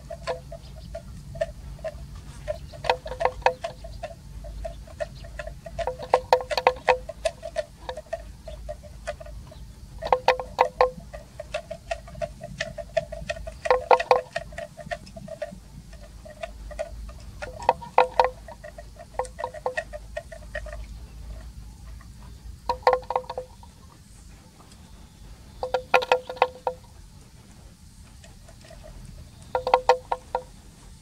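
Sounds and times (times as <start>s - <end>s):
neck bell clinking: 25.6s - 26.9s.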